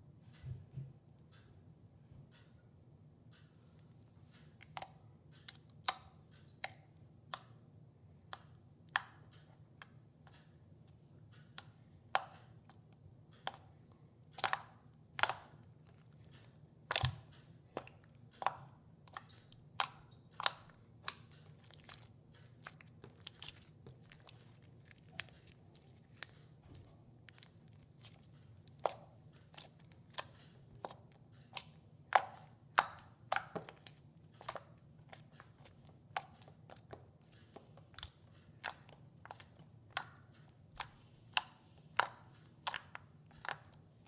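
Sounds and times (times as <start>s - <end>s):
slime crackling: 19.1s - 43.9s
slime popping: 19.8s - 37.0s.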